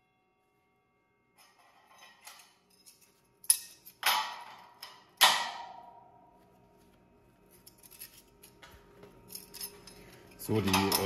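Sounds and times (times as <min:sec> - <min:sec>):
steel pieces clanking on metal: 0:01.4 - 0:05.6, 0:09.3 - 0:11.0.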